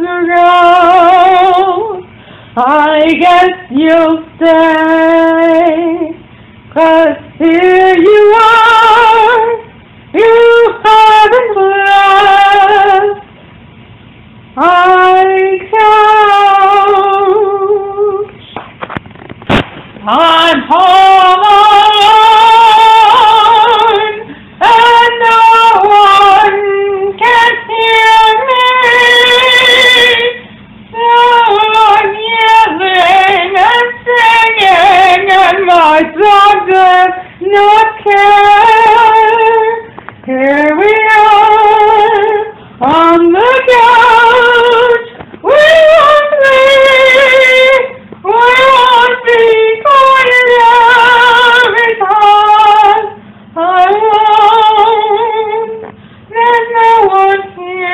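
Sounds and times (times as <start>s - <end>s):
woman singing wordless notes: 0.0s - 13.3s, 14.5s - 18.6s, 20.0s - 57.9s
singer breathing: 2.1s - 2.6s, 24.2s - 24.6s, 42.5s - 42.8s, 55.8s - 56.3s.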